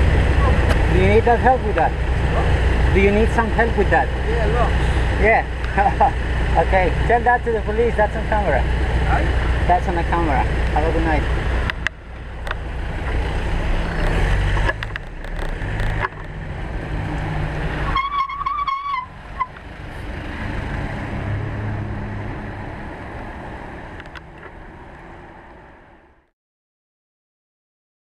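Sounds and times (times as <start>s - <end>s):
motorcycle engine running: 0.0s - 16.6s
wind and road noise: 0.0s - 26.3s
horn honking: 17.9s - 19.5s.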